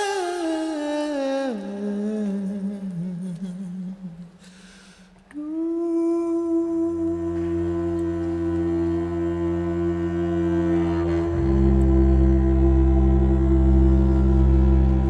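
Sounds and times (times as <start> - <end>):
man singing softly: 0.0 - 4.5, 5.3 - 15.0
low sustained tone: 5.4 - 15.0.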